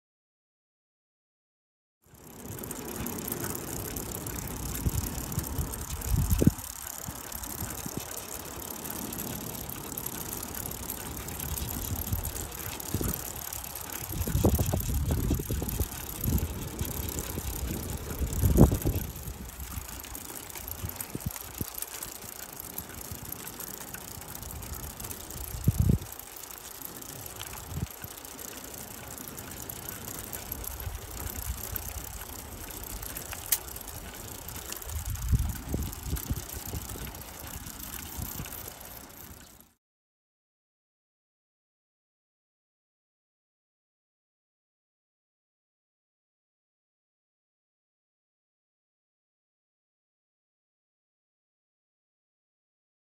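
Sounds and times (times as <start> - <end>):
bicycle tyre noise: 2.0 - 39.8
wind hiss: 2.5 - 23.4, 29.5 - 39.5.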